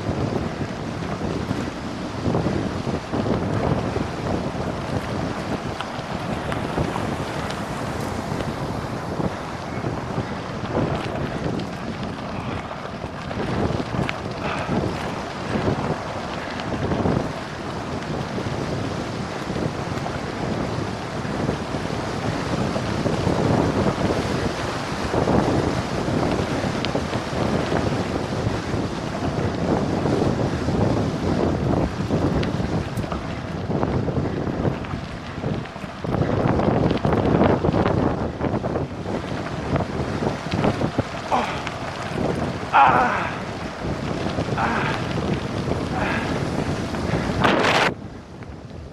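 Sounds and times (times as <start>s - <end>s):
bicycle tyres on gravel: 0.0s - 48.9s
wind buffeting microphone: 0.0s - 48.9s.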